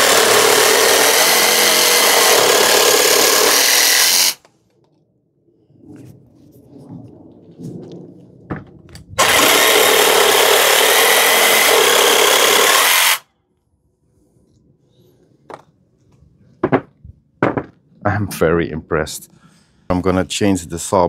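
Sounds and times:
jigsaw sawing wood: 0.0 - 4.4, 9.2 - 13.2.

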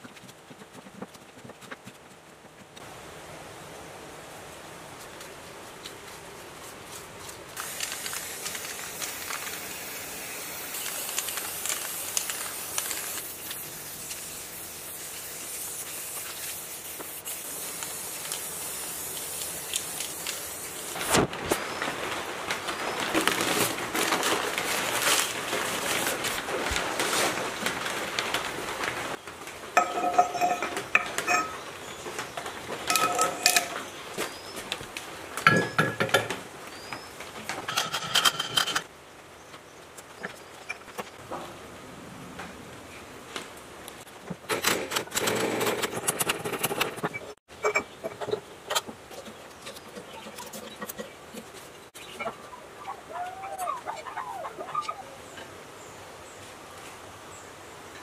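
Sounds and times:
aerosol spray can hissing: 7.6 - 21.0
metal parts clinking: 29.8 - 31.6, 32.9 - 33.8.

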